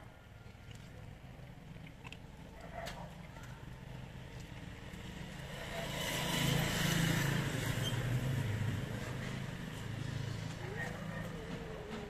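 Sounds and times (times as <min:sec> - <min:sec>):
vehicle driving past: 0:04.0 - 0:12.0.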